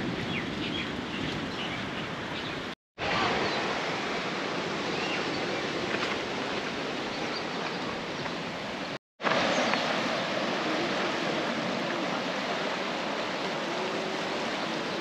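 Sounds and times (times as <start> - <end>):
ocean surf rushing: 3.0 - 15.0.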